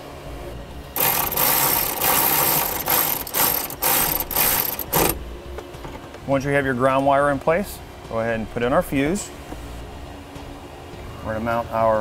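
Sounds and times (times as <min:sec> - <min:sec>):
cordless power driver running: 0:00.9 - 0:05.2.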